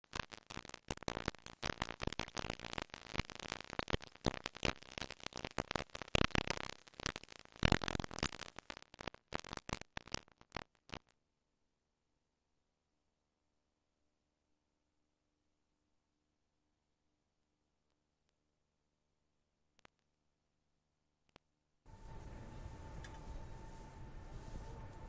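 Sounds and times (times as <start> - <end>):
dense crackling clicks: 0.0 - 11.2.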